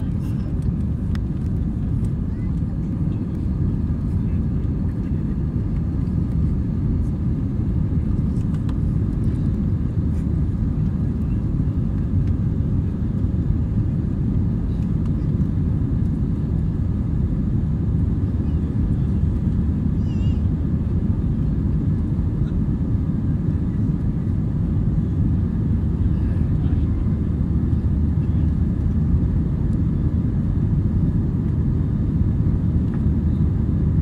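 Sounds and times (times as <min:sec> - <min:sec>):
jet cabin engine rumble: 0:00.0 - 0:34.0.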